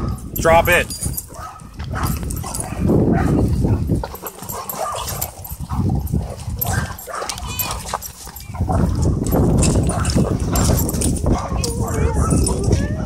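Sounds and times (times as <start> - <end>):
dogs scuffling: 0.8 - 13.0
dogs play vocalizing: 1.2 - 13.0.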